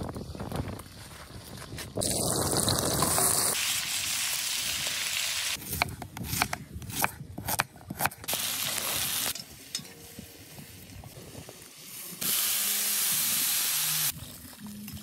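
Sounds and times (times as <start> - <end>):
knife chopping on wooden board: 5.7 - 8.2.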